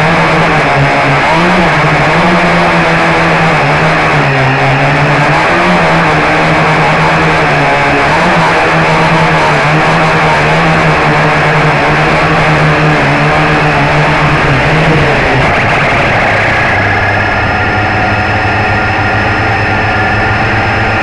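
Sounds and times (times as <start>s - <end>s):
quadcopter motors buzzing: 0.0s - 21.0s
rushing air: 0.0s - 21.0s.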